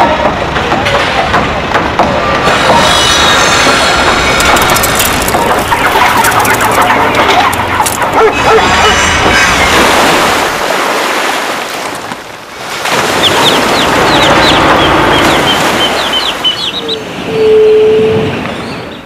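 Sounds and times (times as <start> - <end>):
steady held tone: 2.2 - 7.8
birds calling: 2.8 - 10.4, 13.1 - 19.0.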